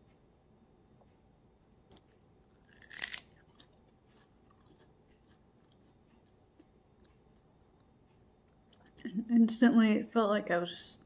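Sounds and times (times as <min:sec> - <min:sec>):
faint chewing crunches: 0:01.9 - 0:09.1
crisp bite into seaweed snack: 0:02.7 - 0:03.4.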